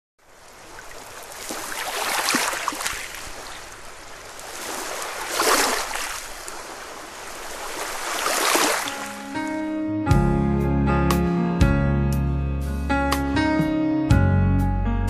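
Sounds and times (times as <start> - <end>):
waves washing onto shore: 0.2 - 9.6.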